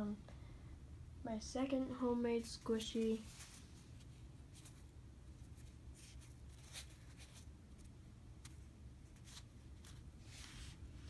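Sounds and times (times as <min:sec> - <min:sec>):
low room hum: 0:00.0 - 0:11.0
faint rustles of squishy toy: 0:02.3 - 0:11.0.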